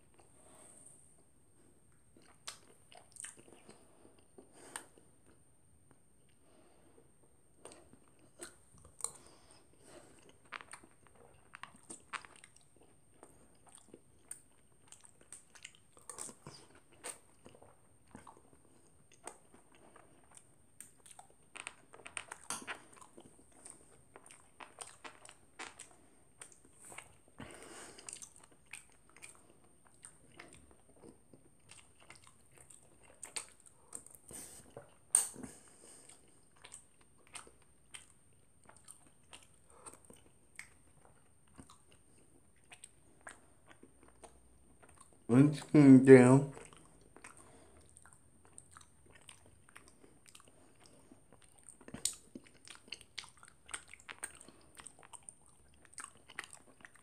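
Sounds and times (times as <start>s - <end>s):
cereal crunching in mouth: 19.1s - 27.2s, 46.5s - 57.0s.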